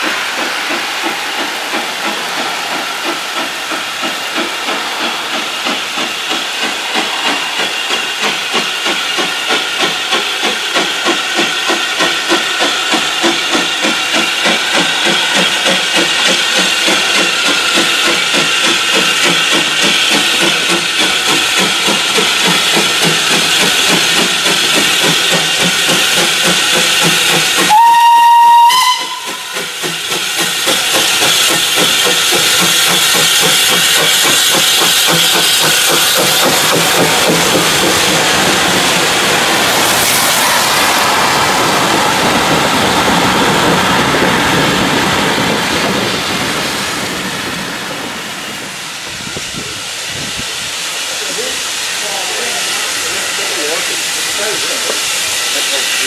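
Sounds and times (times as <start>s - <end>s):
steam hissing: 0.0s - 56.0s
steam locomotive chuffing: 0.0s - 56.0s
train whistle blast: 27.6s - 29.7s.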